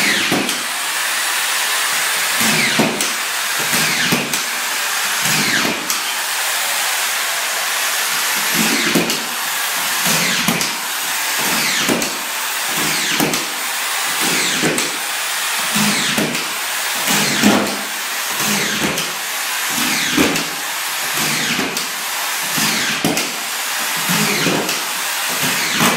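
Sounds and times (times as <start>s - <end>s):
screw gun motor whine: 0.0s - 14.7s.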